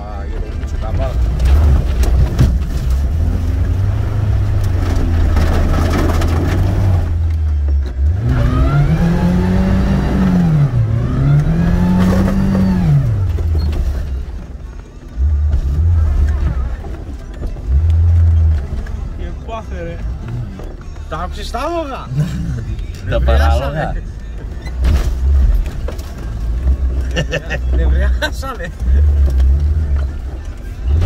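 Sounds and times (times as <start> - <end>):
off-road vehicle engine revving: 1.1 - 14.3, 15.2 - 19.1, 21.9 - 24.1, 26.4 - 31.0.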